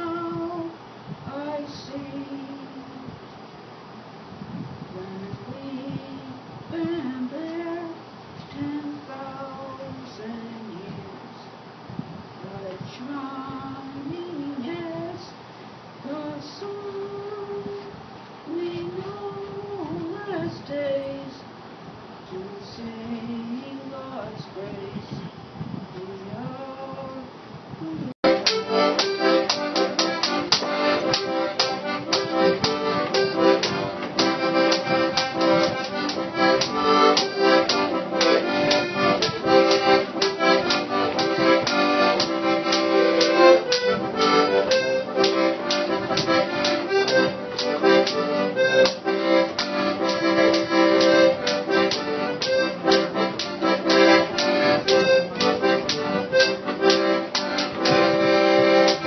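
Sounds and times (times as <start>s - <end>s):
accordion playing a tune: 28.2s - 59.0s.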